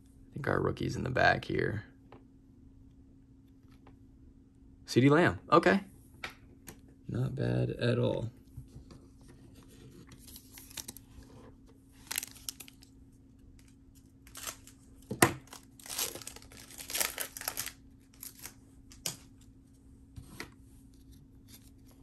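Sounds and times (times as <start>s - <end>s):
cards rustling: 9.6s - 11.3s, 11.9s - 12.9s, 13.6s - 19.3s
plastic wrapper tearing and crinkling: 10.2s - 11.0s, 12.0s - 12.9s, 13.6s - 19.1s.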